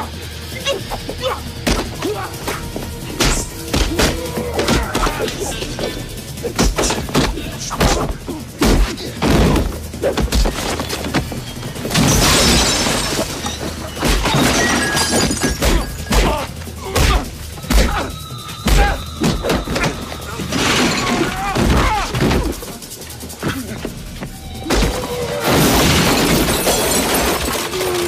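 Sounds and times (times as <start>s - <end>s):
dramatic music score: 0.0s - 28.0s
crash with shattering: 11.8s - 16.4s, 18.7s - 22.7s, 24.8s - 28.0s.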